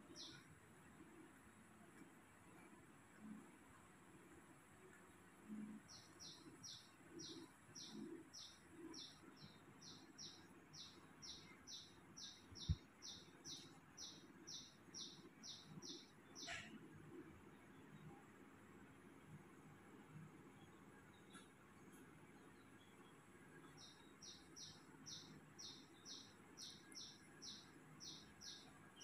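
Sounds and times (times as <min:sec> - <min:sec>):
bird chirping: 0:00.0 - 0:00.5, 0:05.5 - 0:16.8, 0:20.4 - 0:29.0.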